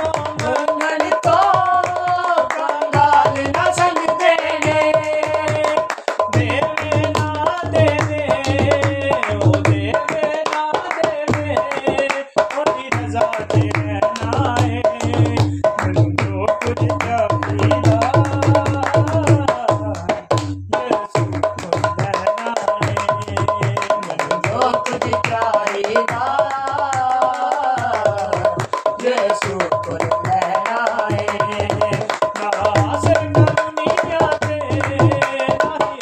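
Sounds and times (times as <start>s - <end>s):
hand drum rhythm: 0.0s - 36.0s
men singing: 0.0s - 36.0s
hand claps: 0.1s - 4.0s, 8.0s - 13.8s, 24.1s - 35.8s.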